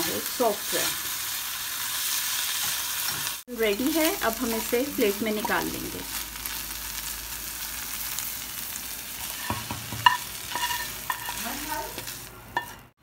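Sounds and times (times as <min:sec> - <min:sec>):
chicken sizzling in a frying pan: 0:00.0 - 0:12.9
spatula scraping a pan: 0:09.2 - 0:12.9.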